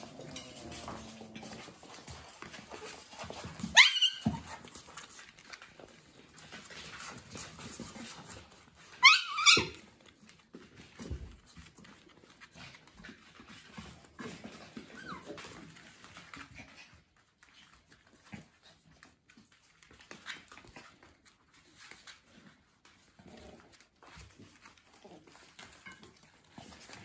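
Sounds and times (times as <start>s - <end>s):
puppy whining: 0.0s - 5.5s, 8.7s - 10.2s, 13.8s - 18.6s, 23.0s - 27.0s
puppies scuffling: 0.0s - 27.0s.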